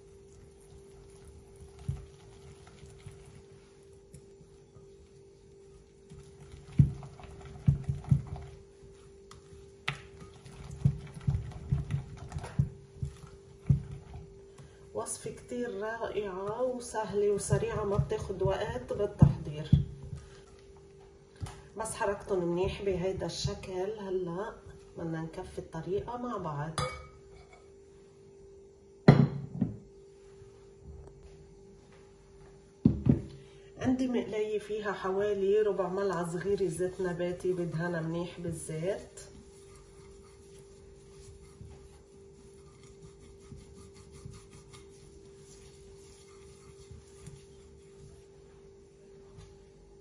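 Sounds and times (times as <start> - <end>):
steady low hum: 0.0 - 50.0
whisk knocking and scraping bowl: 0.4 - 3.5, 5.6 - 15.6, 16.3 - 20.6, 36.2 - 48.4
glass bowl thunk on counter: 29.1 - 29.8.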